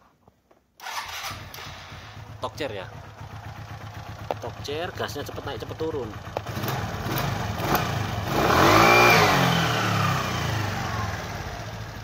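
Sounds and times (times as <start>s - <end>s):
small motorcycle engine revving: 5.9s - 12.0s.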